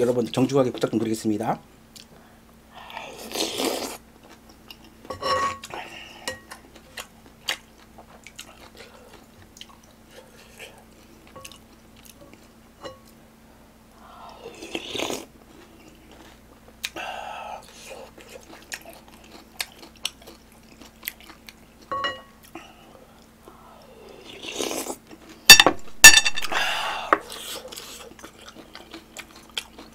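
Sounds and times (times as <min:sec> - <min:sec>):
chewing: 0:05.6 - 0:12.5, 0:17.6 - 0:25.4, 0:27.2 - 0:29.9.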